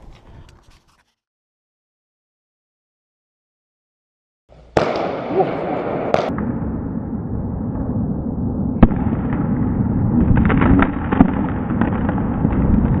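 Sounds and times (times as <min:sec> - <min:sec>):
firework crackles and pops: 0:04.6 - 0:06.5, 0:08.8 - 0:13.0
firework bang: 0:04.6 - 0:07.9, 0:08.8 - 0:13.0.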